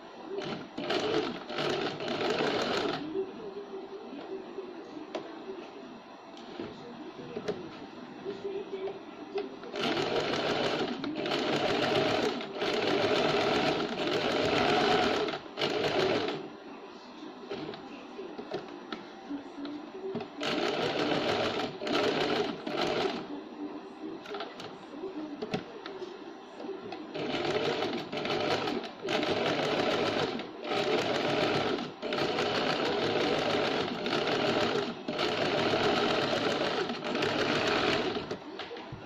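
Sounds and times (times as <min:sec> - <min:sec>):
sewing machine stitching: 0:00.4 - 0:03.0, 0:09.7 - 0:16.4, 0:20.4 - 0:23.2, 0:27.1 - 0:38.4.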